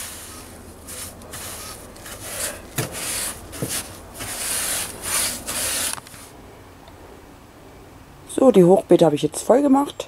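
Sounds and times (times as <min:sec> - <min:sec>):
paintbrush scrubbing on wood: 0:00.0 - 0:06.3
brush knocking against wood: 0:00.9 - 0:06.2.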